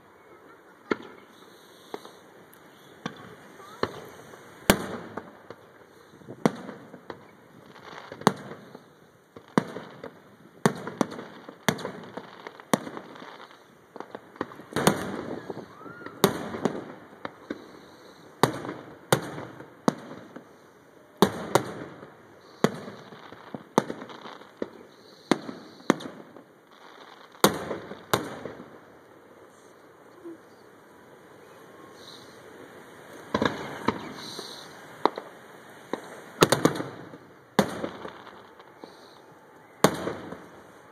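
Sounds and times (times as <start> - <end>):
fireworks bangs with echoing rumble: 0.8 - 2.2, 3.0 - 29.3, 31.4 - 40.9.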